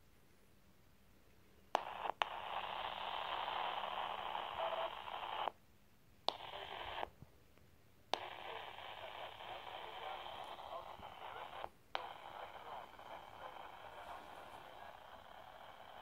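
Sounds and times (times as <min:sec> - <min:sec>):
radio static bursts: 0:01.8 - 0:05.6, 0:06.3 - 0:07.1, 0:08.2 - 0:16.0.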